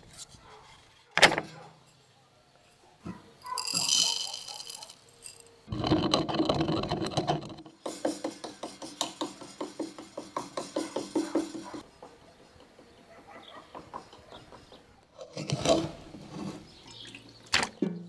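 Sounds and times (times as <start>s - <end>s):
rough scraping and handling: 0.0s - 2.0s, 2.6s - 11.9s, 15.2s - 17.0s.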